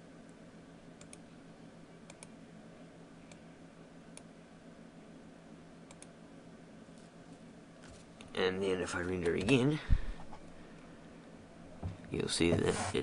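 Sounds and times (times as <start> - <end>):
low electrical hum: 0.0 - 13.0
computer mouse clicks: 1.0 - 1.2, 2.1 - 2.3, 5.9 - 6.1.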